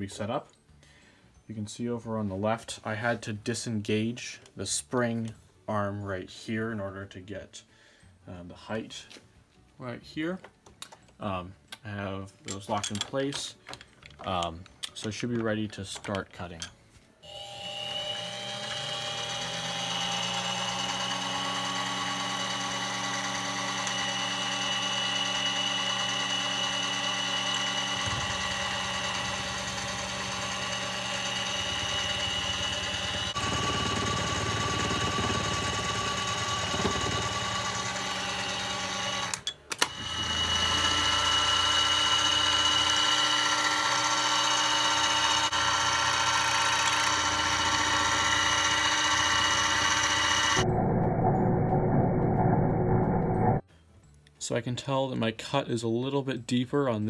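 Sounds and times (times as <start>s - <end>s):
milling machine motor whining: 17.2s - 53.6s.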